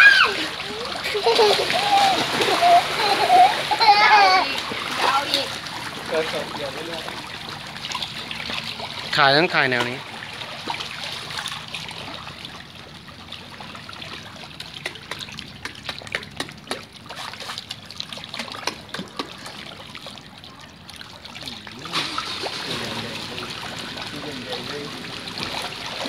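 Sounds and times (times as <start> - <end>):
fish splashing and sloshing: 0.0 - 26.0
fish wet slaps: 14.6 - 19.6.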